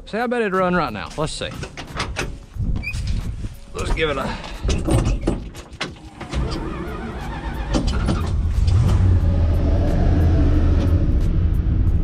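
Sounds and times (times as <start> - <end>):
engine cranking: 3.9 - 11.0
engine running: 6.1 - 12.0.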